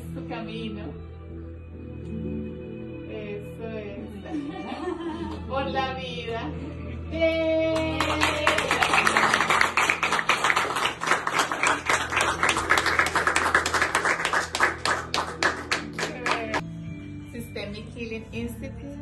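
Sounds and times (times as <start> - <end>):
group hand-clapping: 7.8 - 16.6.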